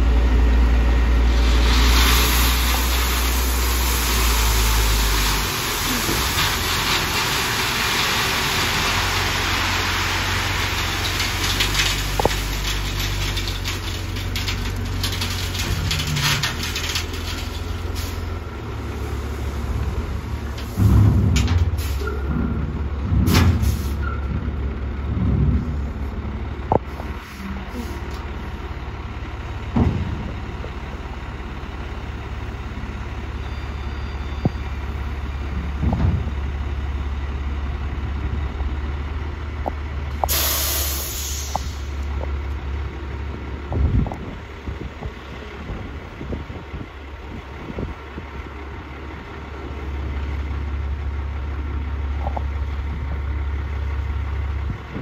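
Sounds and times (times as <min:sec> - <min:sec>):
diesel truck engine running: 0:00.0 - 0:55.0
gravel sliding with rushing hiss: 0:01.1 - 0:22.3, 0:39.7 - 0:50.6.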